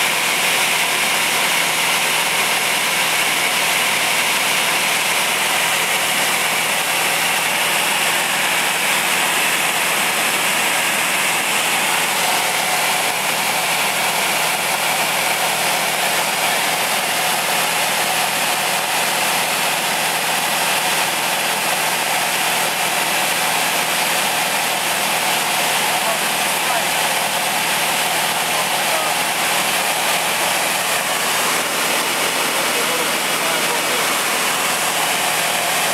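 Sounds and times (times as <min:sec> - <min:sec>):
aircraft engine drone: 0:25.0 - 0:35.9.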